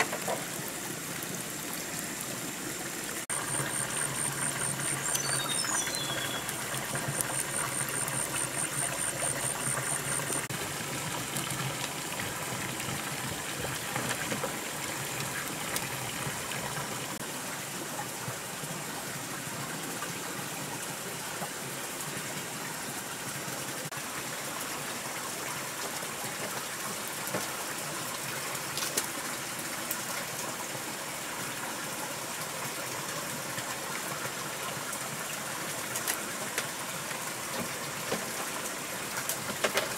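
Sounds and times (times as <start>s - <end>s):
running water: 0.0s - 39.9s
high pulsing insect-like call: 3.3s - 10.5s.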